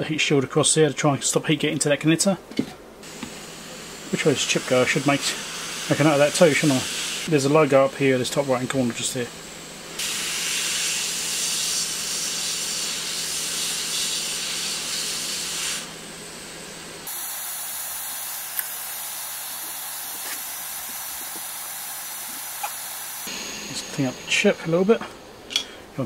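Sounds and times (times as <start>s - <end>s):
hot air gun hissing: 3.0s - 25.9s.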